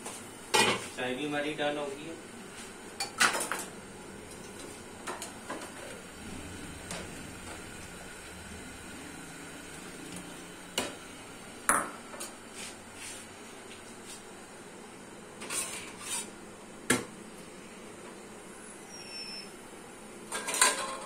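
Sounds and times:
steel kitchenware clanking: 20.3 - 21.0.

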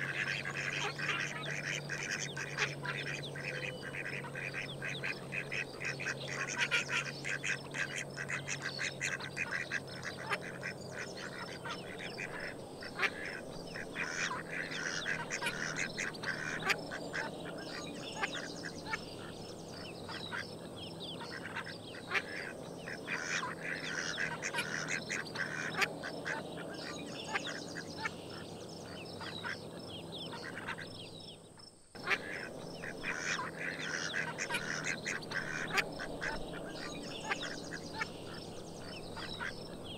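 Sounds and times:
ducks quacking: 0.0 - 31.0, 32.0 - 39.9.

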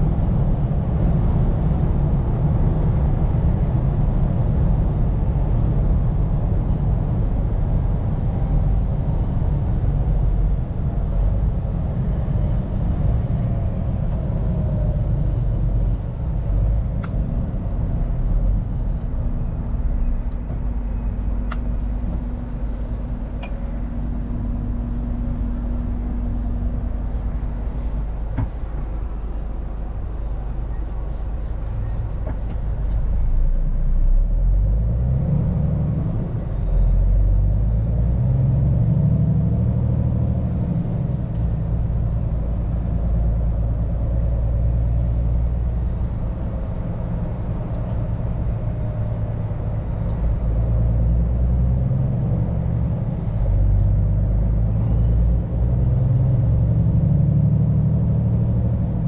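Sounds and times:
truck diesel engine and road noise: 0.0 - 59.0.

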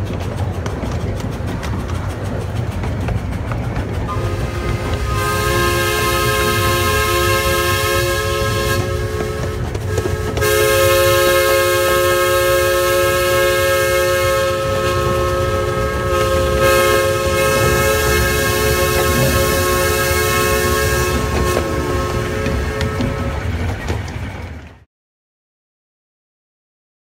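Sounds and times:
rumble of cars on track: 0.0 - 24.8
steam whistle chord: 4.1 - 23.4.

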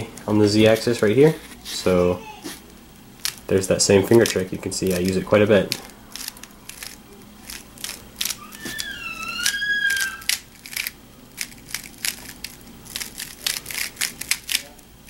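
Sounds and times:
plastic puzzle cube clicking: 4.2 - 14.7
high wavering squeak: 8.3 - 10.4.

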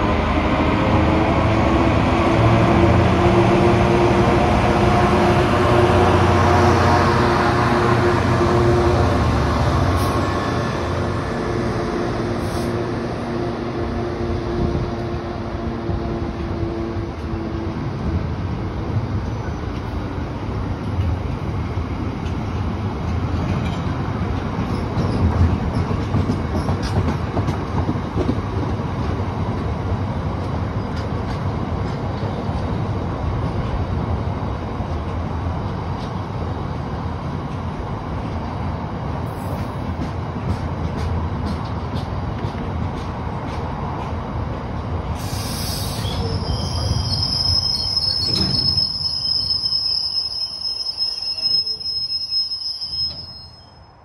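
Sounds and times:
freight train wheels rumbling: 0.0 - 53.8
diesel locomotive engine: 0.0 - 54.0
wheels clicking over rail joints: 22.2 - 32.7.

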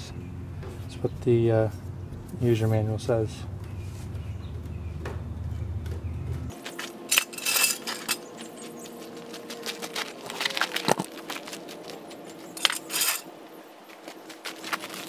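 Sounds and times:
metal floor jack clinking: 7.1 - 8.3, 12.6 - 13.3
sharp metal clanks: 7.1 - 8.3, 12.6 - 13.3.

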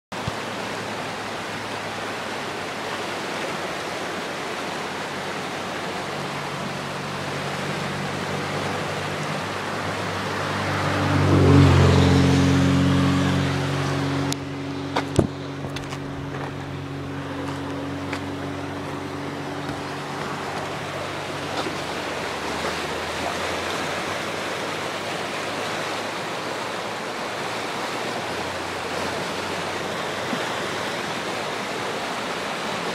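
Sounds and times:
engine hum: 0.1 - 32.9
floodwater rushing: 0.1 - 32.9.

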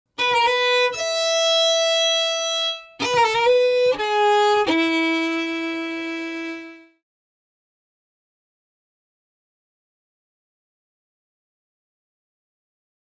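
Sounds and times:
solo violin phrase: 0.2 - 7.0.

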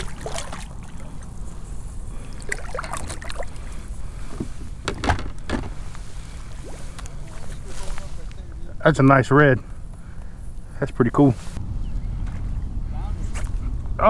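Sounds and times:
steady low rumble: 0.0 - 14.0
knocks against plastic kayak: 4.8 - 5.8.

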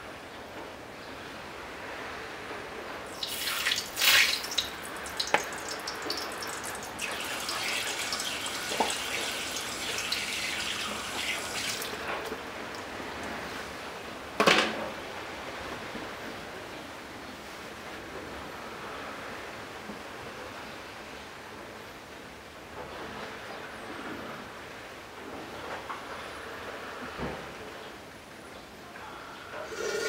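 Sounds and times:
hot oil sizzling: 3.1 - 12.0, 29.6 - 30.0.

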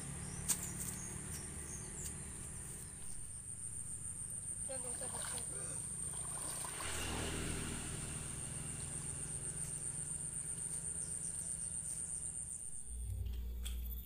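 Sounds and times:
water swishing from net: 4.7 - 8.4
low rumble: 6.6 - 11.6
high-pitched insect drone: 6.7 - 13.0.

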